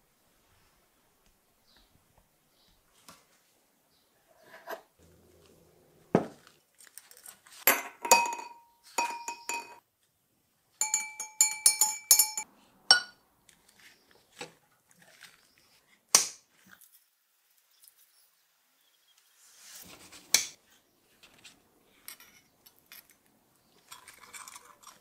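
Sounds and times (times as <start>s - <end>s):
metal parts clinking on glass: 7.1s - 9.8s, 10.8s - 13.1s.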